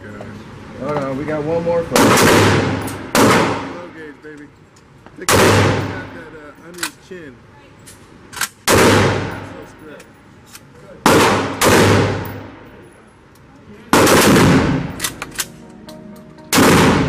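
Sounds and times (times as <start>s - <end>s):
gunshots with long echo: 2.0s - 4.0s, 5.3s - 6.2s, 8.6s - 9.5s, 11.0s - 12.5s, 13.9s - 15.2s, 16.5s - 17.0s.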